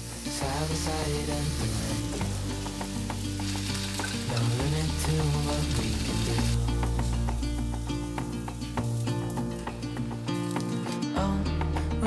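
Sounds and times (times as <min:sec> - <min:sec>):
chicken sizzling in a pan: 0:00.0 - 0:06.6
soft background music: 0:00.0 - 0:12.0.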